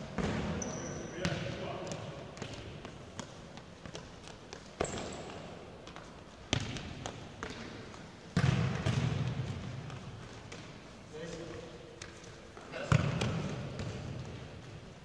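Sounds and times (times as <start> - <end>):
ball kicks ringing in hall: 4.8 - 5.6, 6.5 - 11.6, 12.6 - 14.8.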